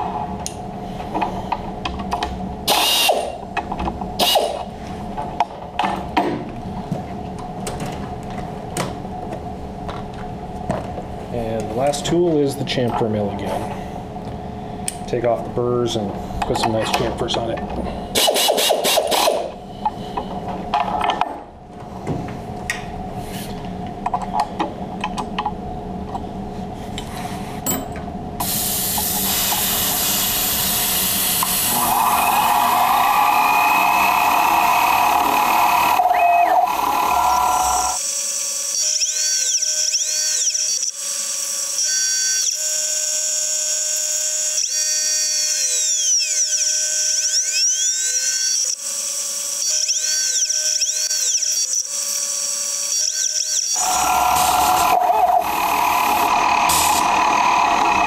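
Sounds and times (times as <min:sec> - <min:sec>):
high spindle whine: 0:29.0 - 0:40.9, 0:44.1 - 0:58.0
motor tones sweeping in pitch: 0:31.7 - 0:38.0, 0:53.1 - 0:58.0.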